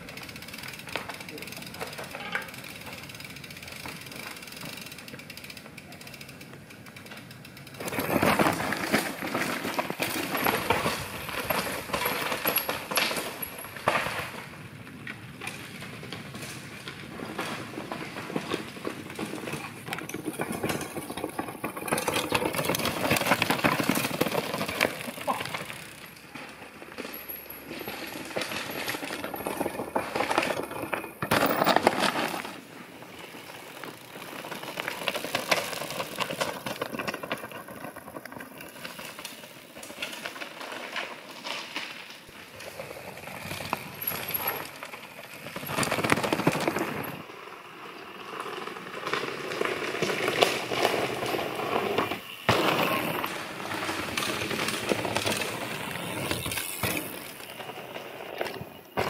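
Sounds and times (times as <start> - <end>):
bike tyres crunching over gravel: 0.0 - 59.0
bike frame clattering: 0.2 - 6.3.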